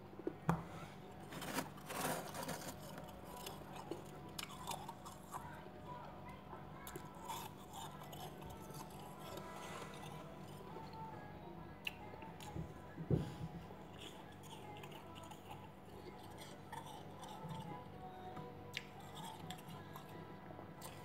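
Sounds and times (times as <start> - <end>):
steady low hum: 0.0 - 21.0
freezer frost crunching: 1.2 - 5.9, 6.8 - 11.0.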